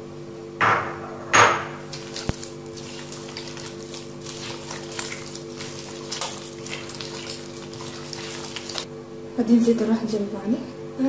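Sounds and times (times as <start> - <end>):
hands squishing wet mixture: 1.8 - 8.9.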